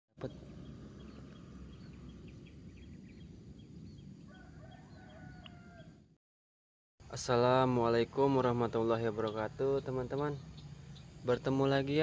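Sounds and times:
low rumble: 0.2s - 4.4s
small birds chirping: 0.2s - 6.0s, 7.9s - 12.0s.

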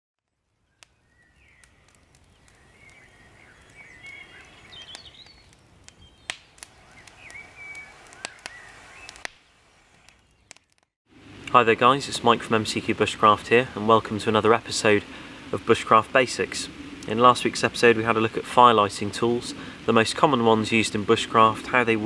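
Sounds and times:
campfire crackling: 0.2s - 22.0s
songbirds chirping and singing: 0.7s - 9.2s.

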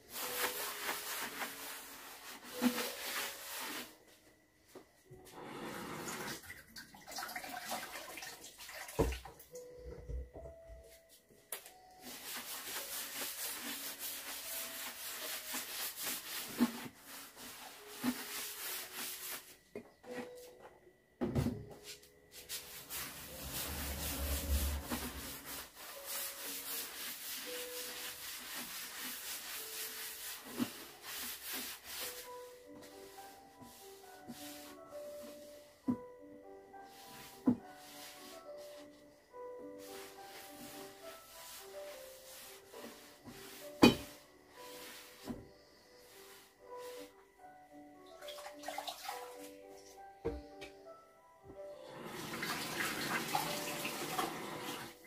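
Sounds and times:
wet sponge scrubbing wood: 0.0s - 4.0s, 12.0s - 19.6s, 22.4s - 35.6s, 36.8s - 38.9s, 39.7s - 45.4s.

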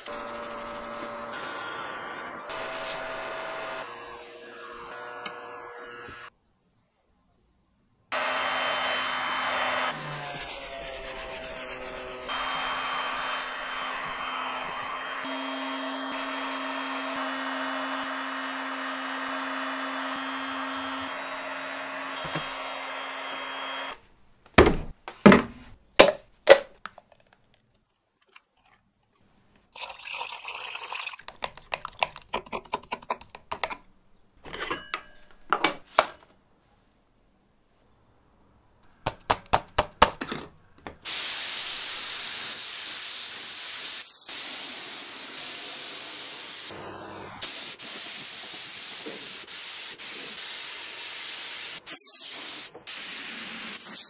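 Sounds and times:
spray gun hissing: 0.0s - 3.9s, 41.0s - 54.0s.

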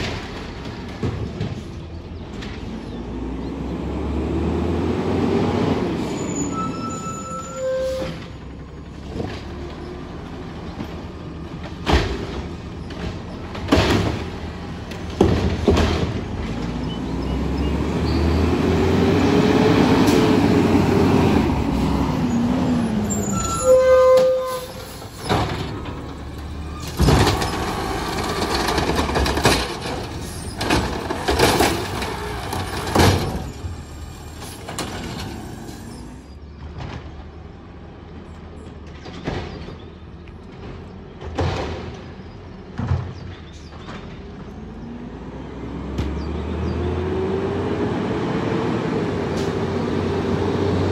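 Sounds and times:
loud bangs of carts dumped: 0.0s - 2.8s, 7.9s - 17.4s, 23.0s - 37.2s, 38.8s - 44.5s
garbage truck engine revving: 2.4s - 6.5s, 8.1s - 23.6s, 24.5s - 36.9s, 44.5s - 50.9s.

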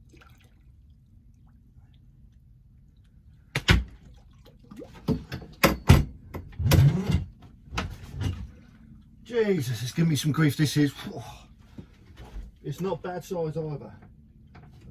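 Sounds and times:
knocks and bumps on a boat: 4.8s - 8.6s.

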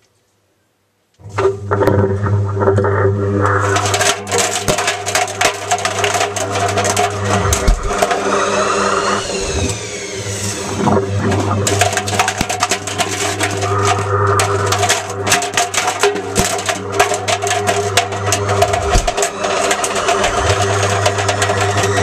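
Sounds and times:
whine: 1.2s - 22.0s
washing machine motor hum: 1.3s - 22.0s
plastic caps clattering in drum: 3.6s - 8.4s, 10.8s - 22.0s.

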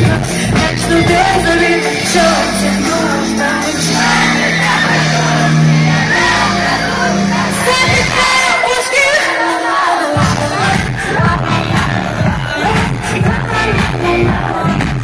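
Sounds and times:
low synth bass notes: 0.0s - 8.5s, 10.2s - 15.0s
live pop music: 0.0s - 15.0s
person singing: 0.0s - 15.0s
people shouting: 3.8s - 10.1s.

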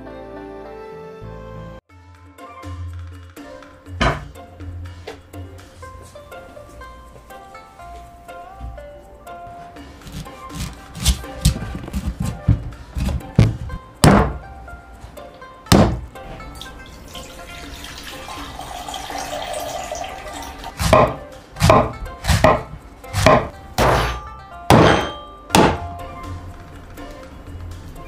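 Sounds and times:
soft music: 0.0s - 28.0s
cleaver chopping coconut husk: 10.0s - 14.4s, 20.8s - 25.8s
coconut water pouring into jug: 16.6s - 20.8s.

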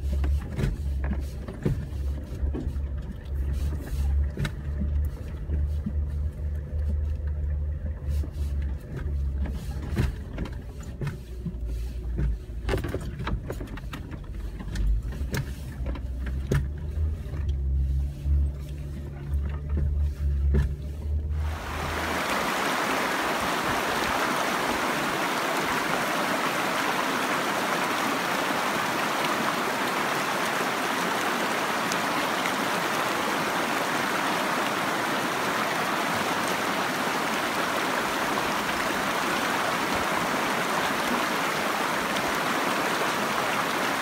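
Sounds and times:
engine and tyre rumble: 0.0s - 44.0s
knocks and rattles from bumps: 8.8s - 17.6s.

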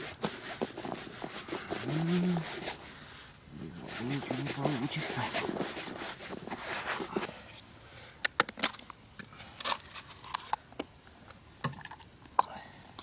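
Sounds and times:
hands kneading damp groundbait: 0.0s - 7.4s.

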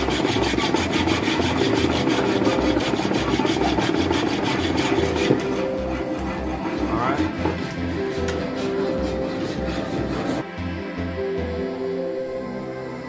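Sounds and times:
hand file scraping metal: 0.0s - 10.4s.

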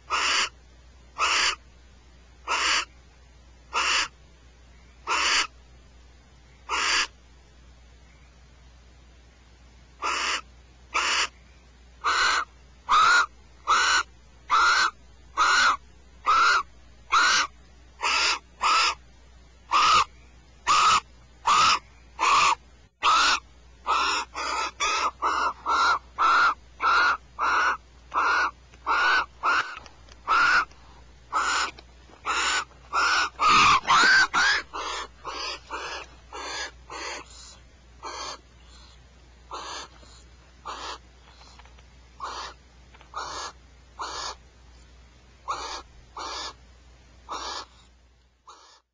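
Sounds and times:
owls screeching: 0.1s - 0.6s, 1.2s - 1.6s, 2.4s - 2.9s, 3.7s - 4.1s, 5.0s - 5.5s, 6.7s - 7.1s, 10.0s - 11.4s, 12.0s - 19.0s, 19.7s - 30.7s, 31.3s - 41.0s, 42.2s - 44.4s, 45.4s - 46.6s, 47.3s - 47.8s, 48.4s - 48.9s.

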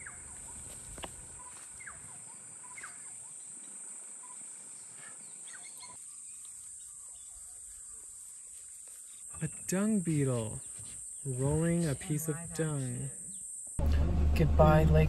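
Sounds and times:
bird chirping: 0.0s - 8.0s.

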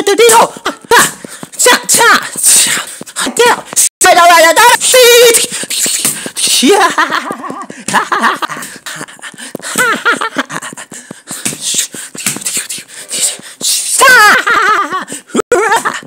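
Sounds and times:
person making playful vocal noises: 0.0s - 8.1s, 11.4s - 14.6s.

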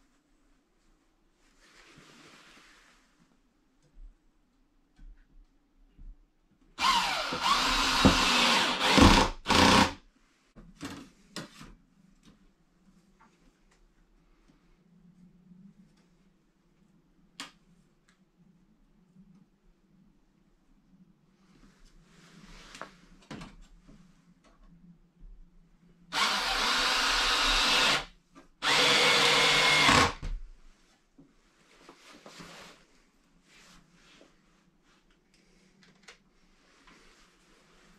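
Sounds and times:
cordless drill into wood panelling: 6.8s - 10.0s, 26.1s - 30.3s.

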